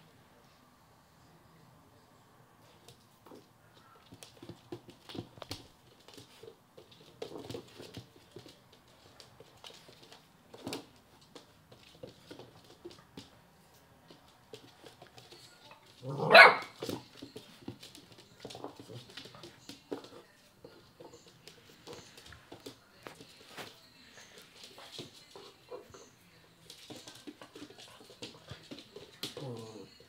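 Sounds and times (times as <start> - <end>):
dog barking: 16.1 - 16.8.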